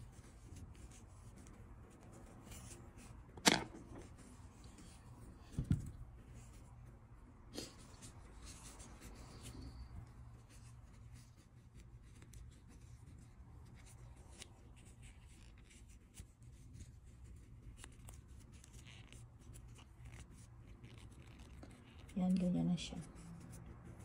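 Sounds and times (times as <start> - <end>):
small clicks and scratches: 8.0 - 24.0.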